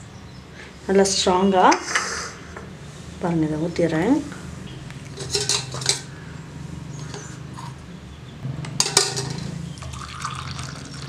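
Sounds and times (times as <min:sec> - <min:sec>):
steel vessels clinking: 0:05.1 - 0:06.1, 0:08.7 - 0:11.0
milk pouring into a cup: 0:09.8 - 0:11.0.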